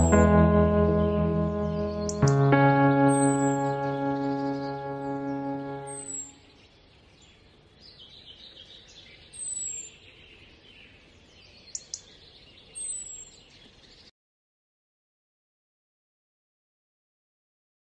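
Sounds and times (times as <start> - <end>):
held music chord: 0.0 - 6.4
birds chirping: 0.0 - 14.1.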